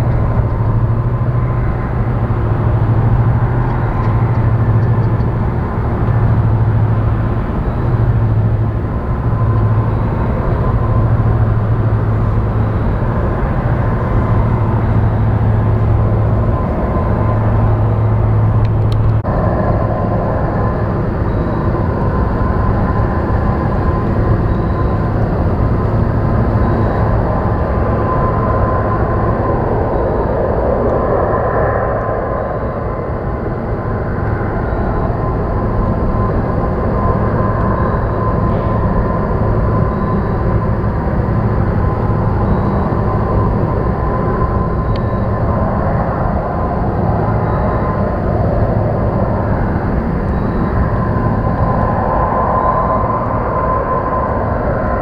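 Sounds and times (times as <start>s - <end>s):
broad industrial rumble: 0.0s - 55.0s
low industrial hum: 0.0s - 55.0s
thin steady high tone: 6.1s - 55.0s
faint high beep: 21.2s - 21.7s, 42.4s - 43.2s, 44.9s - 45.3s.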